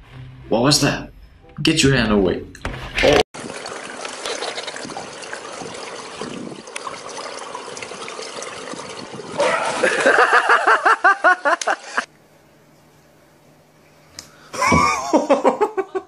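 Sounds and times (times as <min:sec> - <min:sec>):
pool water sloshing: 0:03.1 - 0:13.1
person crying out: 0:09.4 - 0:10.0.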